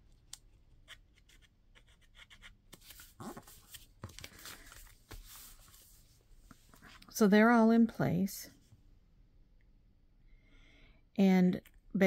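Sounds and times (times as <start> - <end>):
paper envelopes rustling: 2.7 - 6.1.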